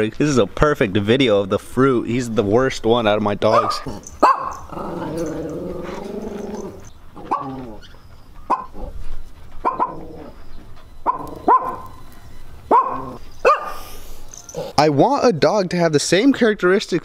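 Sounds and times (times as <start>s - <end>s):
dog barking: 3.5s - 7.8s, 8.5s - 8.9s, 9.6s - 10.1s, 11.0s - 12.0s, 12.7s - 13.9s
dog howling: 3.6s - 7.9s, 11.1s - 12.0s, 12.7s - 13.9s.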